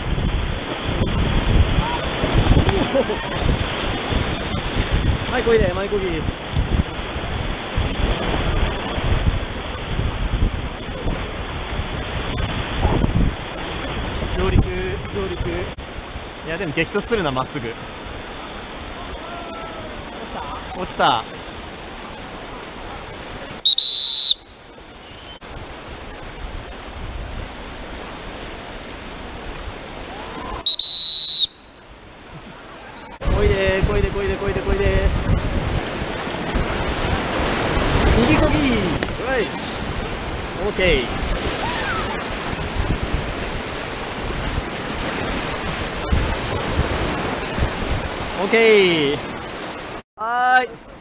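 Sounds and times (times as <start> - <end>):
whitewater rapids rushing: 0.0 - 14.9, 16.4 - 50.0
wind buffeting microphone: 0.0 - 17.0, 31.9 - 48.5
loud whistle blasts: 23.6 - 25.4, 30.6 - 31.8.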